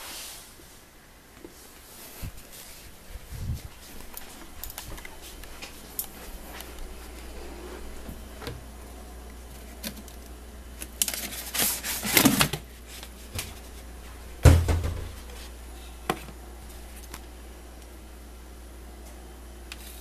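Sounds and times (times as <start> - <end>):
cabinet door shutting: 14.4 - 15.3.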